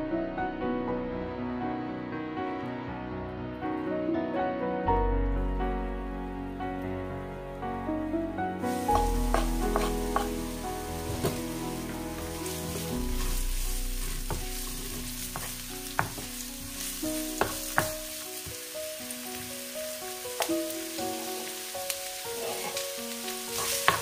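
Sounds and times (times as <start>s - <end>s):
onions sizzling in oil: 8.6s - 24.0s
wooden spoon knocking on pan: 8.9s - 11.5s, 14.0s - 18.6s, 23.6s - 24.0s.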